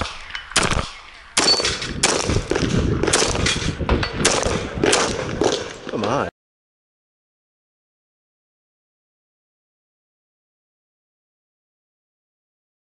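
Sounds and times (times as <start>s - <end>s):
pistol shots: 0.6s - 5.8s.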